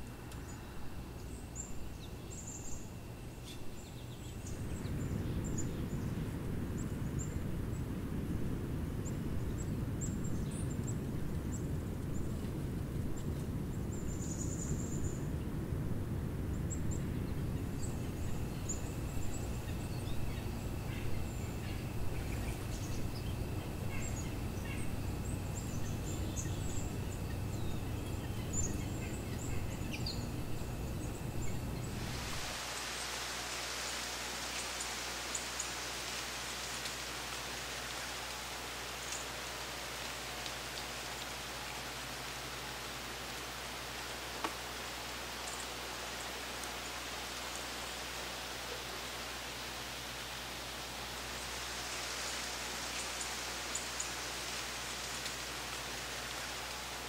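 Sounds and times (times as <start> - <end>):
small birds chirping: 0.0 - 8.0, 8.9 - 15.5, 16.5 - 49.7, 50.3 - 56.9
steady low rumble: 0.0 - 32.6.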